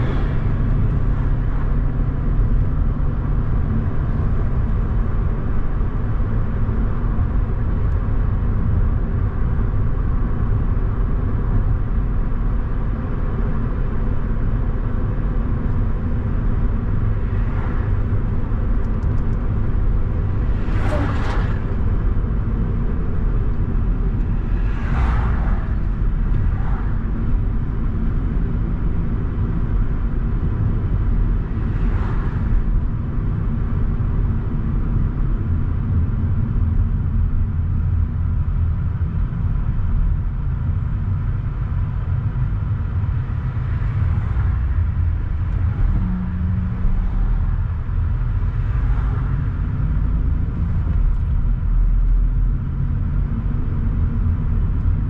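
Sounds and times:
car road and engine rumble: 0.0s - 55.0s
vehicles whooshing past: 20.2s - 22.6s, 23.8s - 27.4s, 43.2s - 51.3s.

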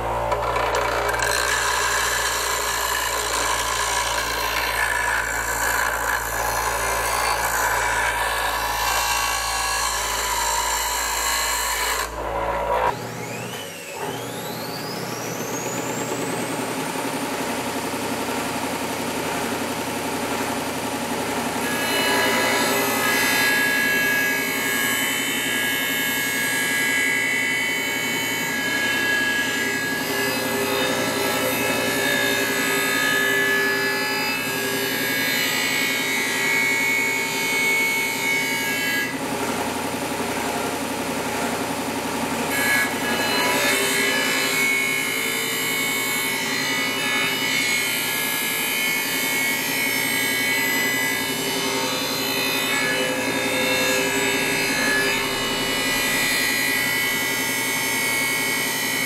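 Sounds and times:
bench sander motor humming: 0.0s - 17.6s.

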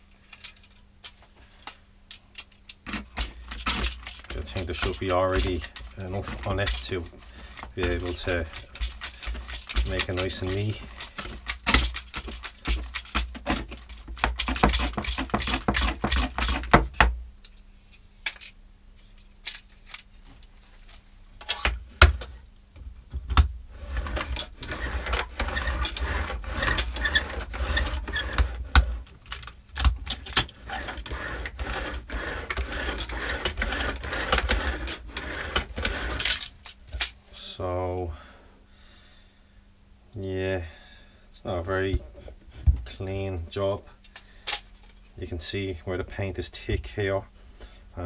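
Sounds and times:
paint edger rolling and clicking: 2.9s - 16.8s, 23.8s - 37.1s.

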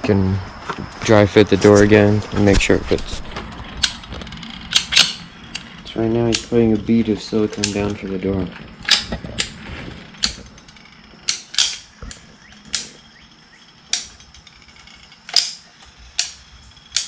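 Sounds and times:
caulking gun clicking: 4.7s - 5.7s, 8.8s - 9.6s, 15.2s - 17.0s.

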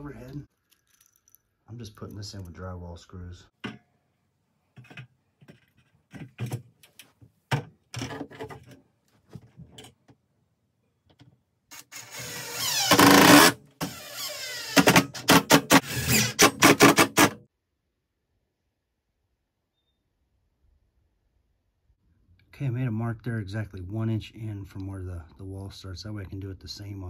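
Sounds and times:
cordless drill motor: 11.8s - 15.0s, 15.8s - 16.5s.

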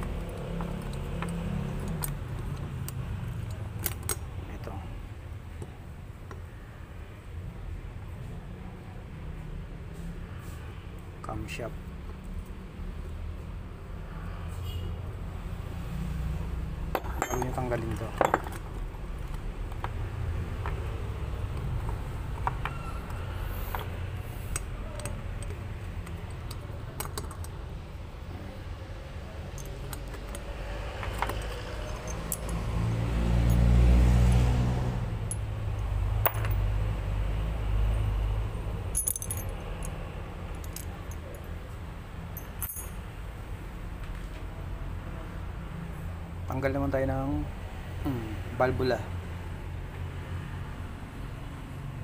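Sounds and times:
small metal parts clinking: 16.9s - 19.8s, 22.4s - 27.6s, 29.5s - 32.6s, 36.2s - 36.6s, 38.9s - 41.6s, 42.3s - 43.0s.

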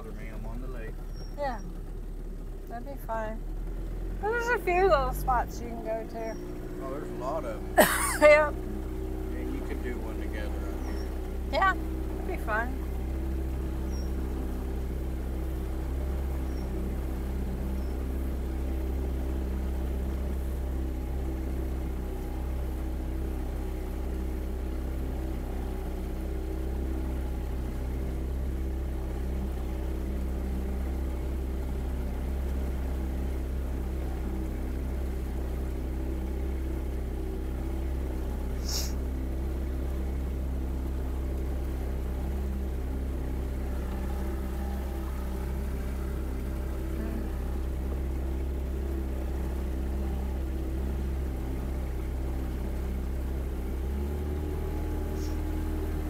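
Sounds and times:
motorboat engine running: 0.0s - 56.0s.

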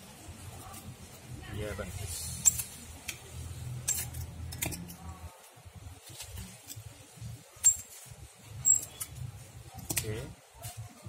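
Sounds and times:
pruning shears snipping leaves: 2.3s - 6.9s, 9.8s - 10.2s.

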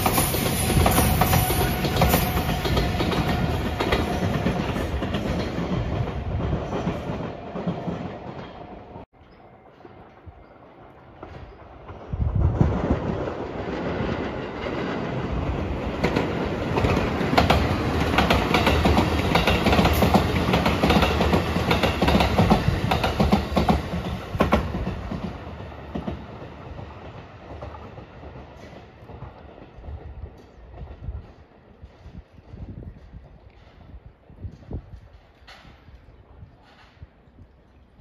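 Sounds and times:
train wheels clacking over rail joints: 15.8s - 37.2s.

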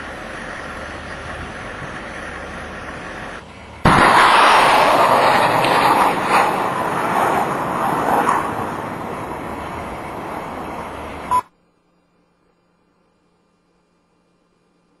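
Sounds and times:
rocket launch rushing noise: 3.8s - 11.1s.

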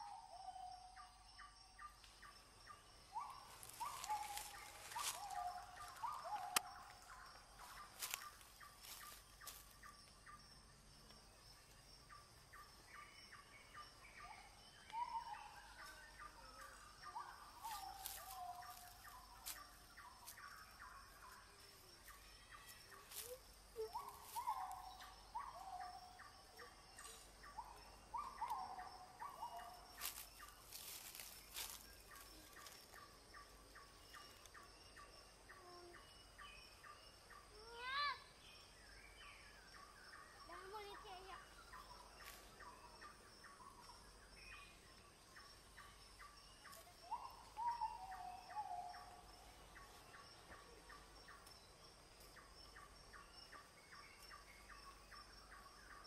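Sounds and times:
faint birdsong chirps: 0.0s - 56.0s.

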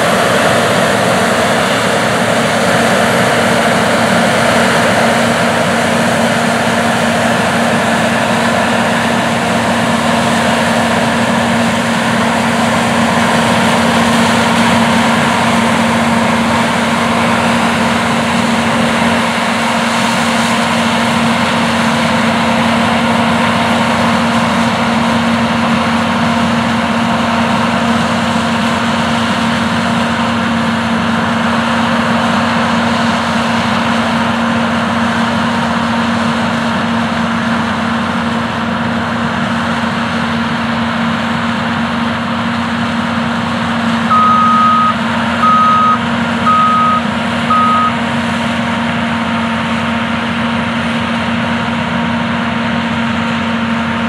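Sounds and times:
combine and tractor droning: 0.0s - 54.0s
electronic warning beeps: 44.1s - 48.0s.

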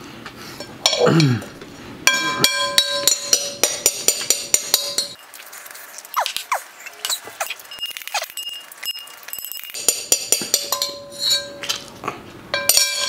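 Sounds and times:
spoon clinking against glass bowl: 7.7s - 11.8s.

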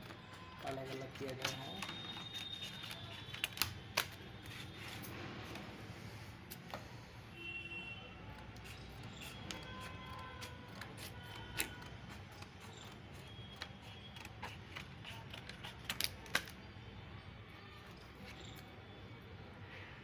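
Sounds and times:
scissors snipping plastic sheet: 0.0s - 5.1s, 8.6s - 16.6s.

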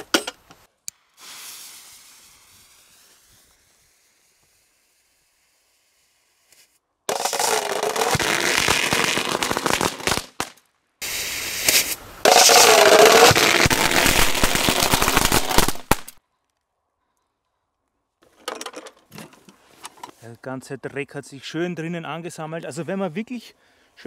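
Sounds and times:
firecracker chain crackling in metal can: 7.1s - 10.3s, 11.6s - 16.2s.

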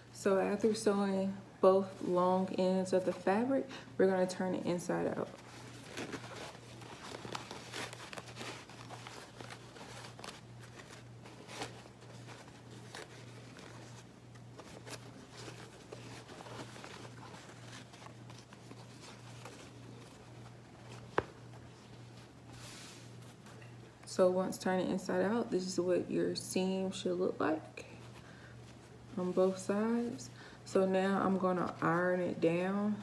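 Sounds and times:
hands rustling and crumpling fabric: 5.1s - 23.9s.

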